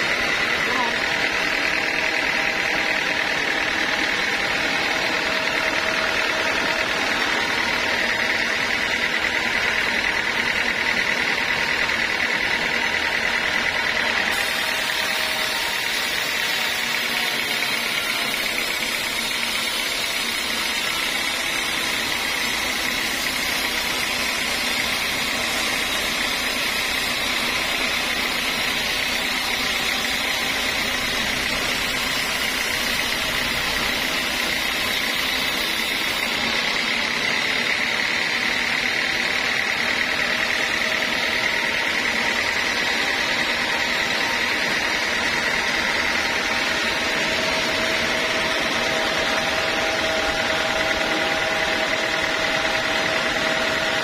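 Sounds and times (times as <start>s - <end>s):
band saw cutting log: 0.0s - 54.0s.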